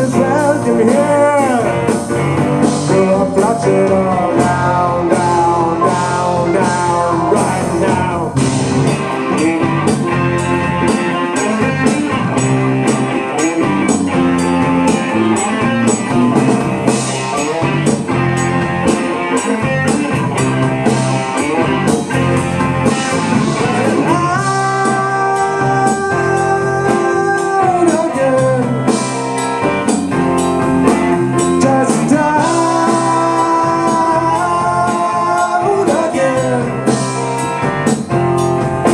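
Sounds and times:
person singing: 0:00.0 - 0:10.0, 0:10.9 - 0:12.6, 0:23.1 - 0:29.2, 0:31.2 - 0:37.1
blues-rock band playing: 0:00.0 - 0:38.9.

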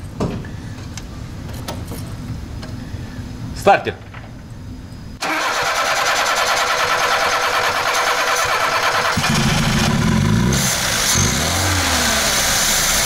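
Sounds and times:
car engine cranking and starting: 0:05.2 - 0:13.0.

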